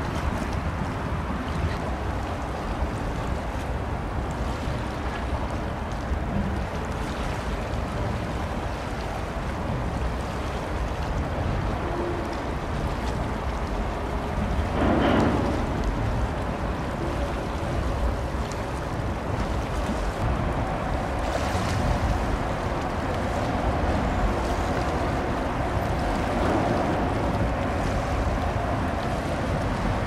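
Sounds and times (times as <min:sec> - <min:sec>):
water: 0:00.0 - 0:30.0
wind: 0:00.0 - 0:30.0
low rumble: 0:14.4 - 0:19.0
loud rush of noise: 0:14.8 - 0:17.1.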